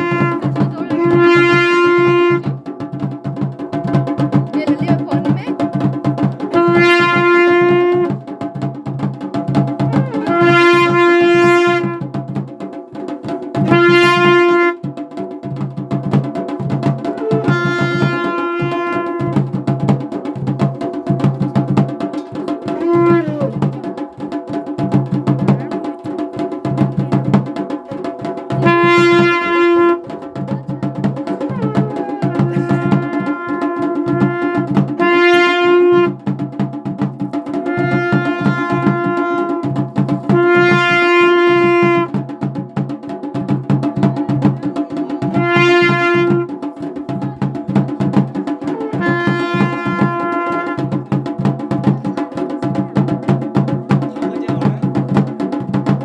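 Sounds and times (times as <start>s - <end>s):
horn-like wind instrument: 0.0s - 2.5s, 6.5s - 8.2s, 9.8s - 12.1s, 13.6s - 14.8s, 17.1s - 19.4s, 22.7s - 23.6s, 28.6s - 30.1s, 31.4s - 36.2s, 37.7s - 42.2s, 45.4s - 46.5s, 48.7s - 51.0s
steady drum beat: 0.0s - 56.0s.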